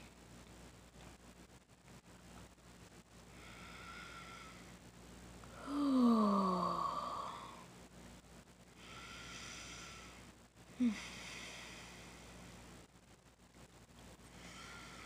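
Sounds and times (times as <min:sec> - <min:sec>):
woman groaning in pain: 0:05.6 - 0:07.5.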